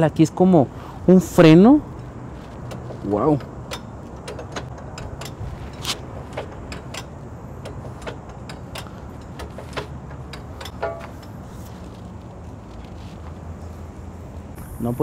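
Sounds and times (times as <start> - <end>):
steady low rumble: 0.1 - 15.0
metal clicks and knocks: 2.0 - 11.5.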